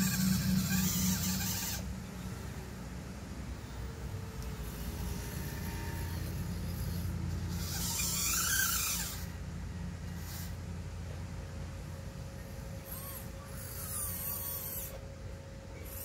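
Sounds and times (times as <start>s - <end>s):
toy excavator motors whirring: 0.0s - 11.2s, 11.8s - 16.0s
steady low hum: 0.0s - 16.0s.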